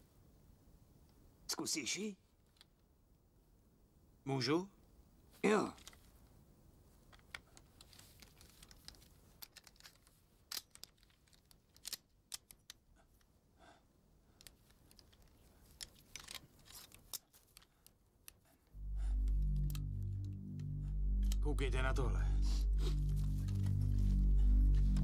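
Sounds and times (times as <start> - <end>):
rifle handling clicks and rustles: 5.8 - 6.2, 7.0 - 13.3, 14.4 - 18.5
loud low music: 18.8 - 25.0.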